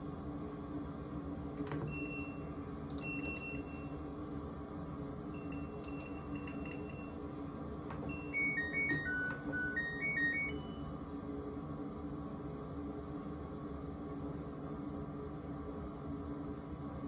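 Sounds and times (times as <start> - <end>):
washer control panel beeps: 1.6 - 4.0, 5.4 - 7.3, 7.9 - 10.9
electronic tune: 8.1 - 10.8.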